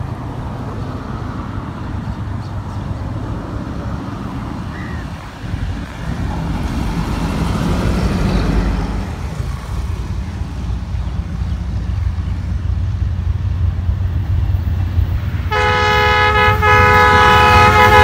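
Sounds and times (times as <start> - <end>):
locomotive rumble: 0.0 - 18.0.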